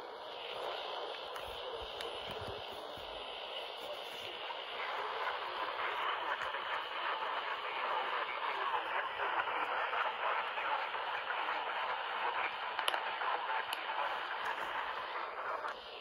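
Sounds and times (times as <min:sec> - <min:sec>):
radio voice through small speaker: 0:00.0 - 0:09.7
radio static: 0:00.0 - 0:16.0.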